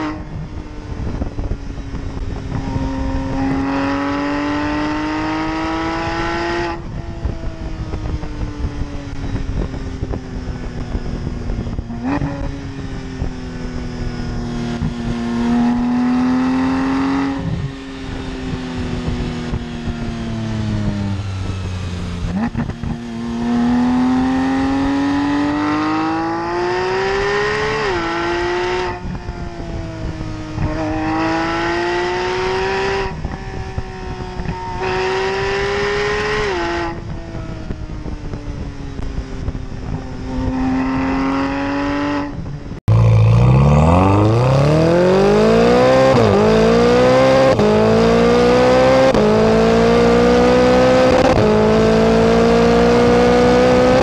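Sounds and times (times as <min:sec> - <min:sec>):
car engine revving through gears: 0:02.3 - 0:06.9, 0:14.0 - 0:19.7, 0:20.9 - 0:29.0, 0:30.1 - 0:37.1, 0:40.3 - 0:54.0.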